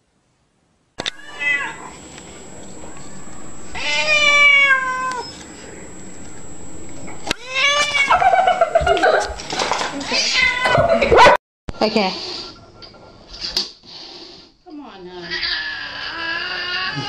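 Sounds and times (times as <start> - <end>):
sharp click: 1.0 - 1.2
cat meowing: 1.0 - 2.0, 2.7 - 5.4, 7.3 - 8.2, 10.1 - 10.9.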